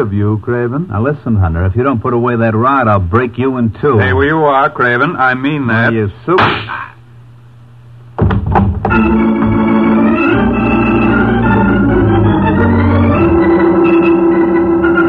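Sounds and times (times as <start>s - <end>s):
sharp gunshots: 6.4s - 6.8s
organ playing loud held chords: 8.8s - 15.0s.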